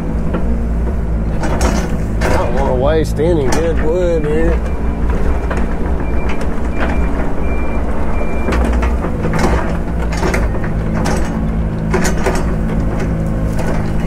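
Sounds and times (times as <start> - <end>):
diesel engine running: 0.0 - 14.0
backup alarm beeping: 4.5 - 8.8.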